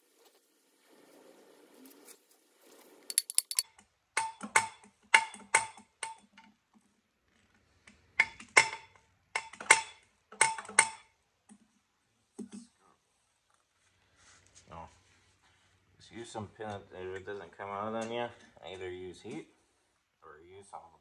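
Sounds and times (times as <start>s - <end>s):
ratchet wrench clicking: 3.1s - 3.6s.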